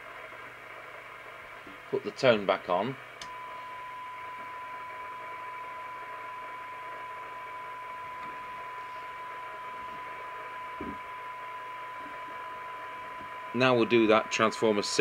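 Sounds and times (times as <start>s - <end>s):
radio static hiss: 0.0s - 15.0s
steady test tone: 3.2s - 15.0s.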